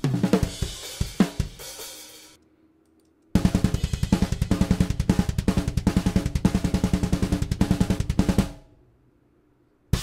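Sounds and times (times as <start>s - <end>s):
rapid kick drum: 0.0s - 1.8s, 3.4s - 8.6s
snare and cymbals: 0.0s - 2.4s.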